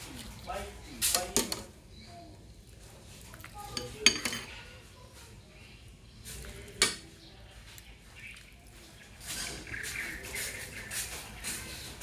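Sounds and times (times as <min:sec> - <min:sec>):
cutlery clinking against dishes: 0:03.8 - 0:04.5.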